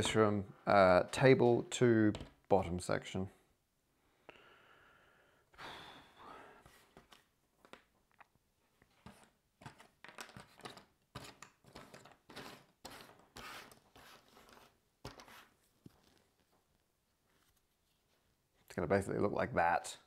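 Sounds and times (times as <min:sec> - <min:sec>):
puzzle pieces rustling and clicking: 0:08.9 - 0:16.5.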